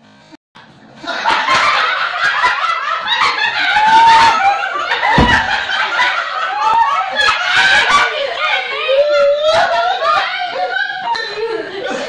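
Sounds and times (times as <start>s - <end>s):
women laughing and giggling: 1.0s - 12.0s
dull thump: 5.1s - 5.8s.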